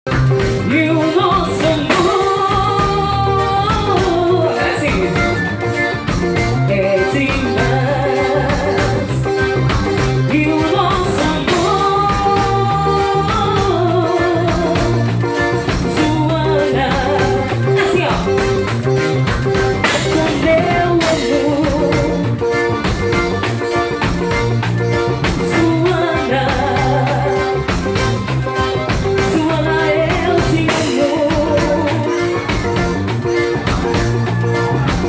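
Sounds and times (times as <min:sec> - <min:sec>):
drum kit: 0:00.0 - 0:35.0
electric guitar: 0:00.1 - 0:35.0
piano accordion melody: 0:00.1 - 0:35.0
woman singing: 0:00.5 - 0:05.6, 0:06.4 - 0:09.4, 0:10.2 - 0:18.6, 0:19.8 - 0:22.5, 0:25.2 - 0:27.7, 0:29.1 - 0:32.6.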